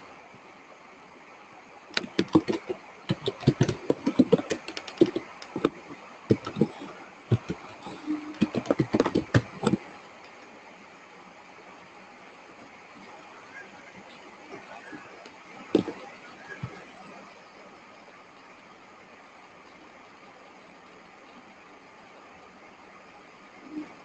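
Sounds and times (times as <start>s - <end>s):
keyboard typing: 2.0s - 10.3s, 15.8s - 16.8s.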